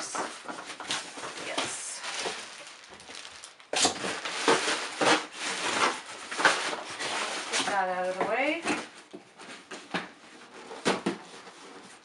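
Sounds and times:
packaging rustling and crinkling: 0.0 - 12.0.

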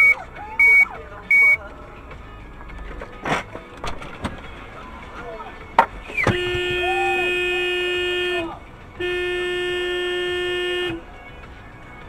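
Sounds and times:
car horn blasts: 0.0 - 1.6, 6.1 - 11.1.

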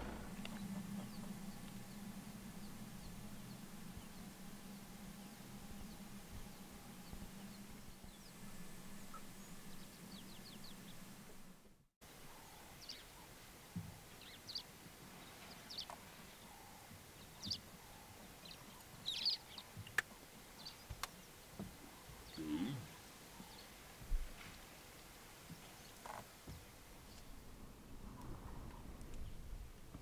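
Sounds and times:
low steady hum: 0.0 - 11.7.

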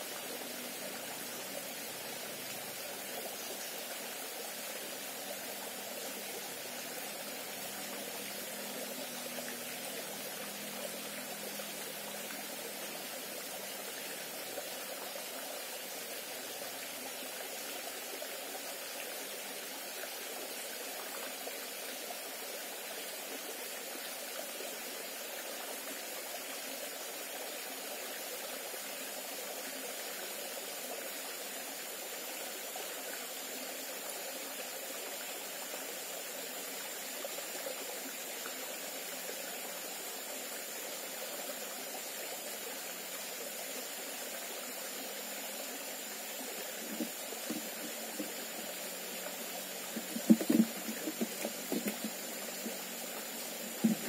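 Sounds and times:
stream rushing over stones: 0.0 - 54.0.

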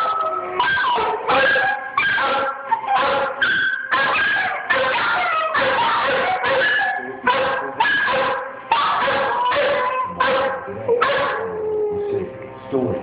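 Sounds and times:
dogs howling: 0.0 - 12.4
music: 6.4 - 13.0.

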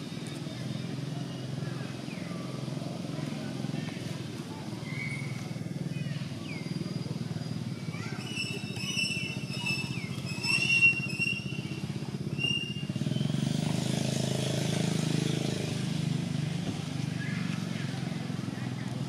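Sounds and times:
vehicle engine throbbing: 0.0 - 19.0
high-pitched chirping calls: 4.8 - 13.4.

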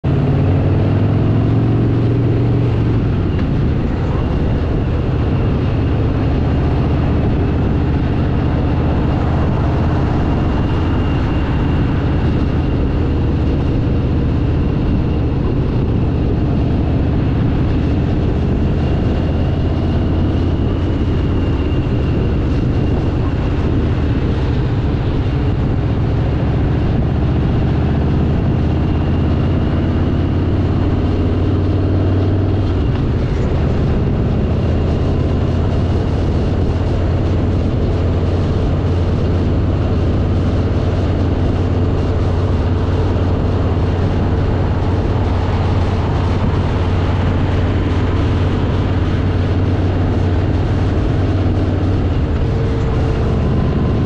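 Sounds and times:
motorcycle engine running: 0.0 - 54.0
wind and road noise: 0.0 - 54.0.

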